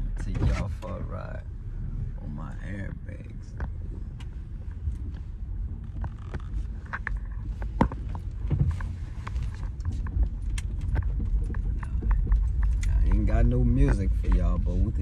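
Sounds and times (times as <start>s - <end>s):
low rumble inside car cabin: 0.0s - 15.0s
light clicks and rattles: 3.1s - 15.0s.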